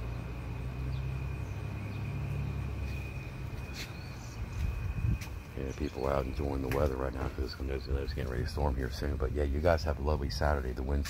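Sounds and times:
constant thin high tone: 0:00.0 - 0:11.0
steady low rumble: 0:00.0 - 0:11.0
faint short chirps: 0:02.8 - 0:05.4.

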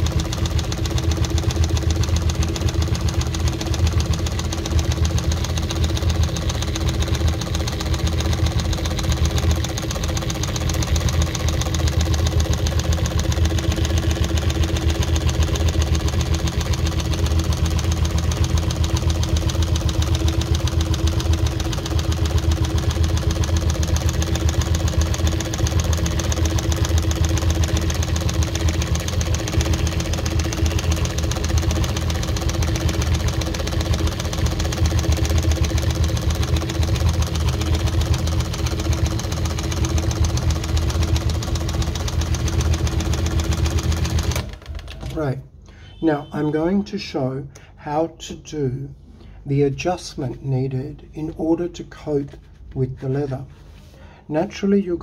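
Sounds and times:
embroidery machine stitching: 0:00.0 - 0:46.4.

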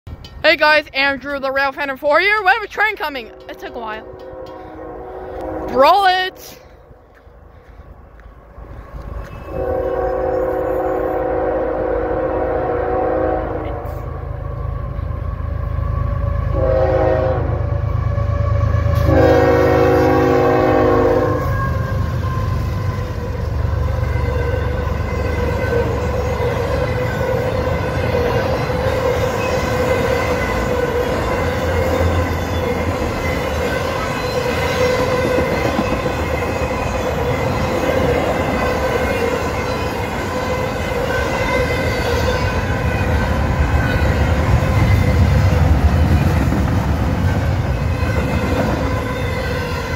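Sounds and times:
diesel locomotive engine rumble: 0:00.1 - 0:49.9
train cars rolling on rails: 0:00.1 - 0:49.9
locomotive horn blasts: 0:03.2 - 0:06.7, 0:09.5 - 0:15.0, 0:15.7 - 0:23.3.

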